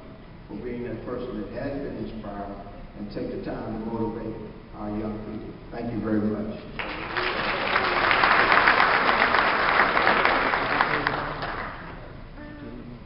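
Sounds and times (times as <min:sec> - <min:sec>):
audience applauding: 0:06.8 - 0:12.1.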